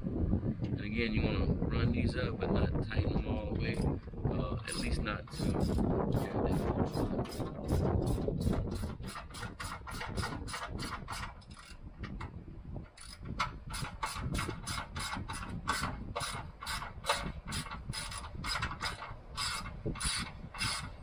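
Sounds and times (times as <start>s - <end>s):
socket ratchet clicking: 6.9s - 12.3s, 12.9s - 21.0s.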